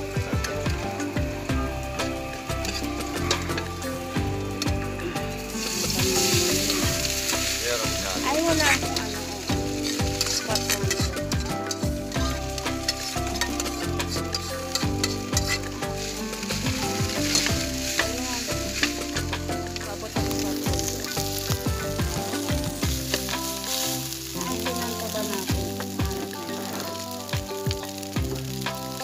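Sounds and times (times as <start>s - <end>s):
light sizzle: 0.0s - 29.0s
metal spatula scraping wok: 1.7s - 29.0s.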